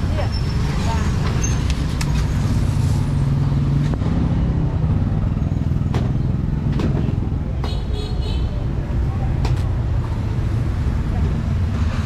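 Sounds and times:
vehicle engine humming: 0.0 - 7.8.

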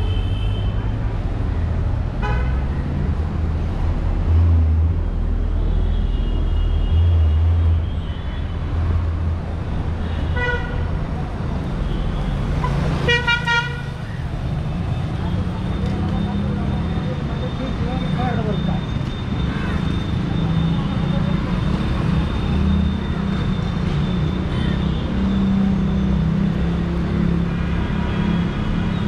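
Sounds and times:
rumble of passing vehicles: 0.0 - 29.0
vehicle horn honking: 13.1 - 13.9.

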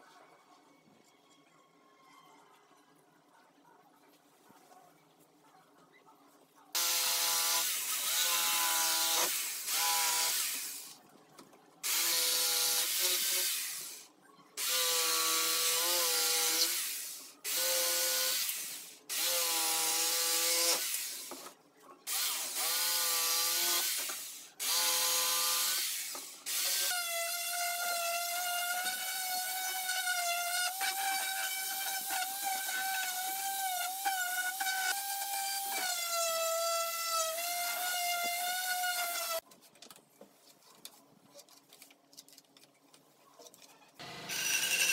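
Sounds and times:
jigsaw cutting wood: 6.8 - 11.0, 11.8 - 14.0, 14.6 - 21.4, 22.1 - 39.4.

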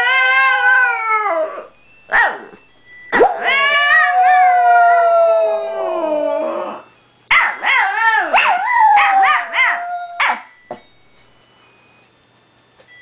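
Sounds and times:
dog howling: 0.0 - 2.6, 3.2 - 6.8, 7.4 - 10.5.

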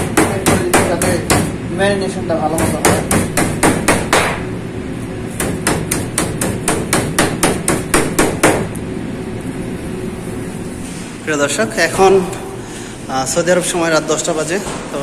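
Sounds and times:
meat mallet pounding chicken: 0.0 - 1.6, 2.5 - 4.4, 5.4 - 8.7.

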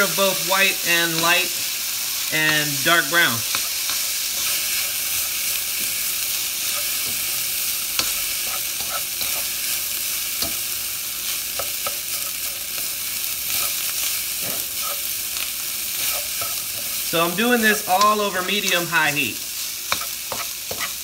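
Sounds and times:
rice sizzling in a wok: 0.0 - 21.0
spatula scraping and tapping pan: 3.5 - 5.0, 6.7 - 9.6, 10.4 - 10.7, 11.5 - 12.9, 19.9 - 21.0.

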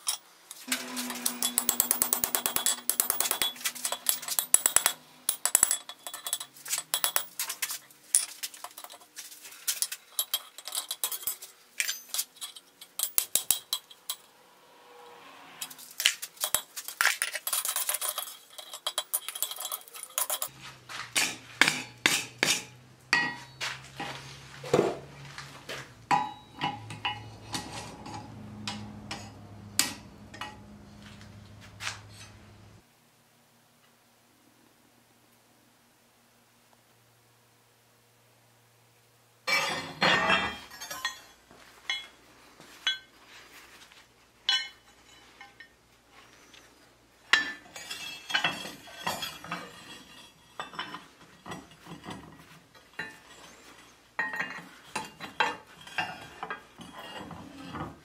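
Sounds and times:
low steady hum: 0.0 - 57.8
hammer striking iron on anvil: 0.7 - 5.9, 21.2 - 23.6, 26.1 - 27.4, 28.1 - 30.8, 44.5 - 44.8.

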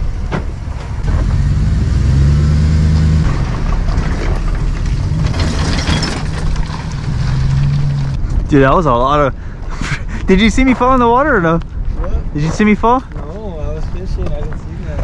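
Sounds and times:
pickup engine accelerating: 0.0 - 8.5.

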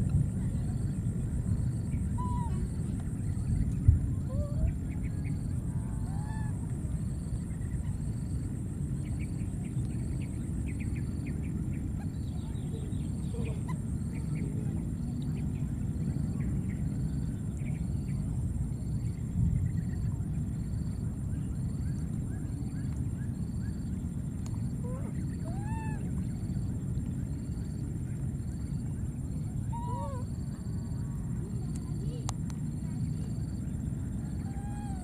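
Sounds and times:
low rumble: 0.0 - 25.4.

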